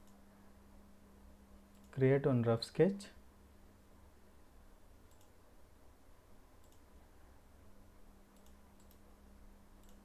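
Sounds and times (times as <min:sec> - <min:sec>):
low electrical hum: 0:00.0 - 0:10.0
computer mouse clicks: 0:01.7 - 0:02.0, 0:05.0 - 0:05.4, 0:06.6 - 0:06.9, 0:08.3 - 0:09.1, 0:09.8 - 0:10.0.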